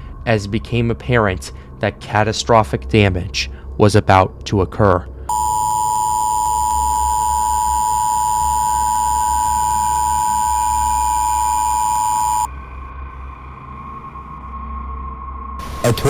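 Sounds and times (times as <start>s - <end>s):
low hum: 5.3s - 12.5s
two-tone alarm: 5.3s - 12.5s.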